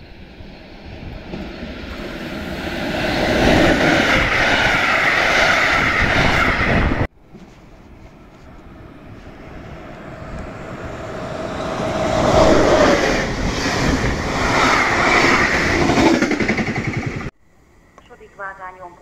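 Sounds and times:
train passing at speed: 0.0 - 7.1, 7.9 - 17.4.

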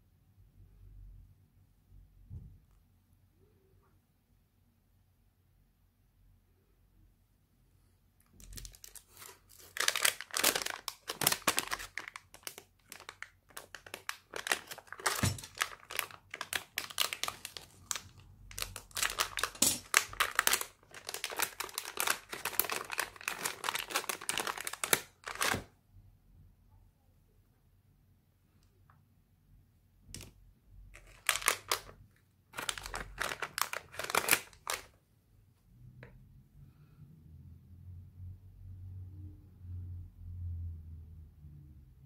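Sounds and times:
packaging bags crinkling: 8.4 - 25.7, 30.9 - 35.0.

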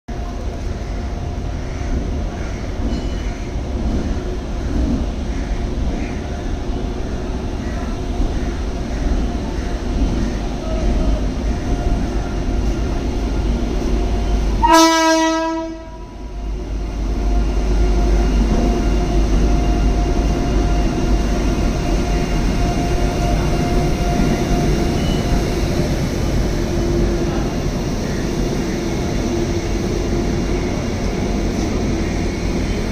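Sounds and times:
locomotive running hum: 0.1 - 32.9
locomotive horn blast: 14.6 - 16.2.

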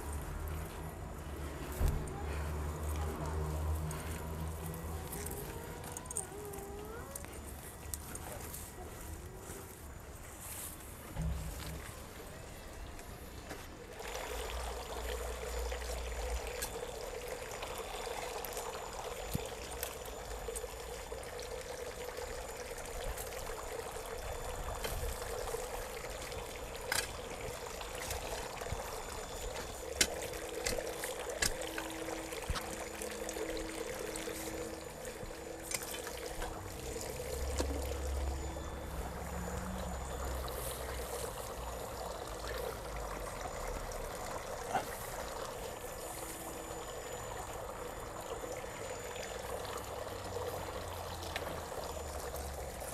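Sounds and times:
trickle of running water: 0.0 - 52.9
hoe digging into soil: 27.9 - 28.6, 29.4 - 32.9.

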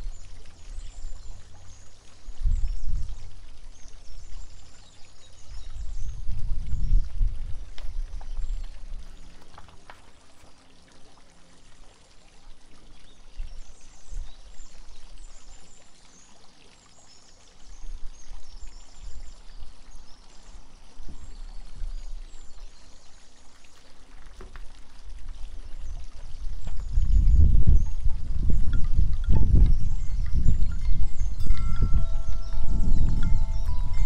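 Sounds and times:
fountain water trickling: 0.0 - 34.0
birds chirping: 26.8 - 34.0.

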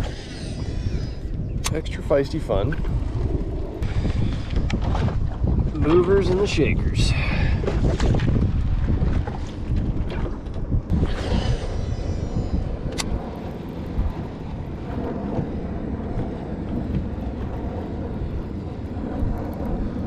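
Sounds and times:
fishing reel spool whirring: 0.0 - 4.9, 10.9 - 20.0
wind on microphone: 0.0 - 20.0.

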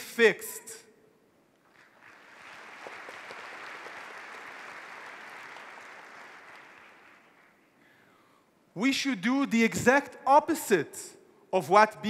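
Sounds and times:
audience applauding: 1.7 - 7.8.

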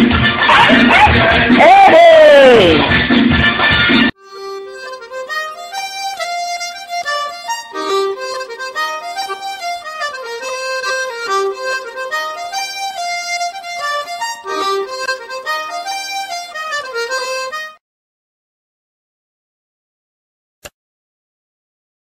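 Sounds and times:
instrumental music: 4.1 - 17.8.

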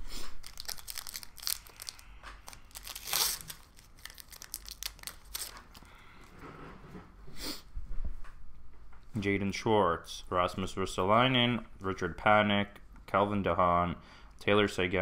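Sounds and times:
foil wrapper crinkling and tearing: 0.3 - 6.0.

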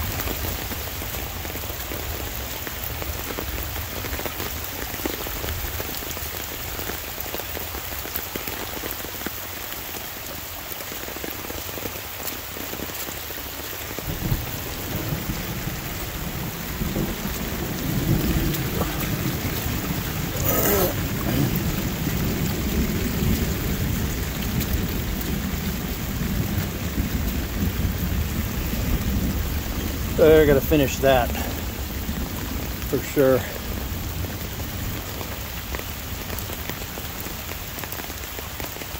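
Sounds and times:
steady rain: 0.0 - 38.9
water rushing down a ditch: 0.0 - 38.9
low rumble of thunder: 14.0 - 36.6.

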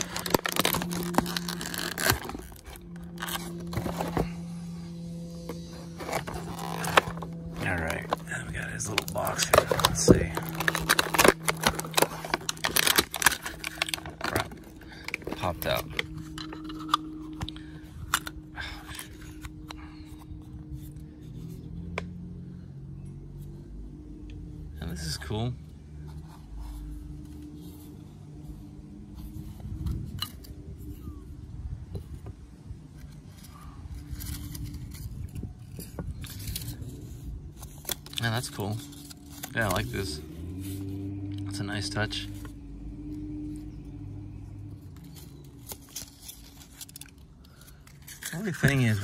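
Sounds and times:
plastic packaging clicking: 0.0 - 4.2, 6.1 - 18.3
steady low hum: 0.0 - 49.0.

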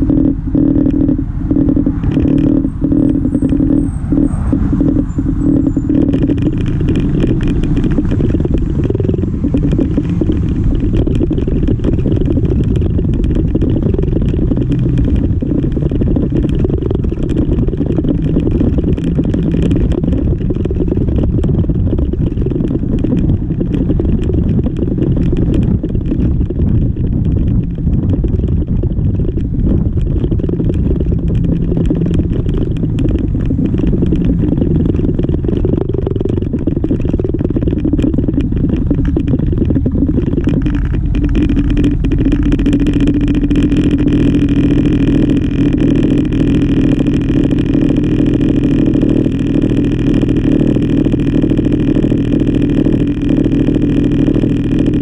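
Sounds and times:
scooter engine: 0.0 - 55.0
wind buffeting microphone: 0.0 - 55.0.

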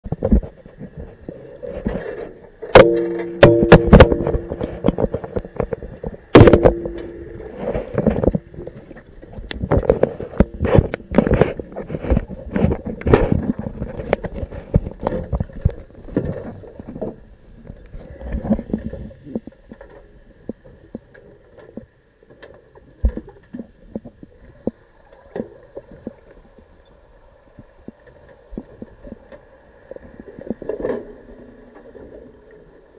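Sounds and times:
metal bars ringing: 2.8 - 4.9, 6.4 - 7.7
underwater knocks on metal cage: 2.8 - 5.7, 6.3 - 8.4.

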